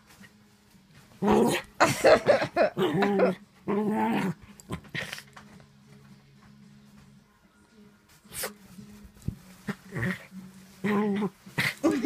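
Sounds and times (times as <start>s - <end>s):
puppy play-growling: 1.1s - 5.6s, 9.6s - 12.0s.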